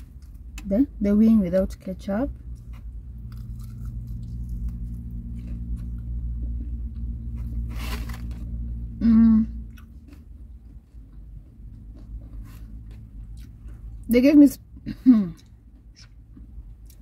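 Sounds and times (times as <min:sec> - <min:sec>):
steady low hum: 0:00.0 - 0:17.0
chewing crunchy chicken: 0:02.5 - 0:08.8, 0:09.7 - 0:14.1.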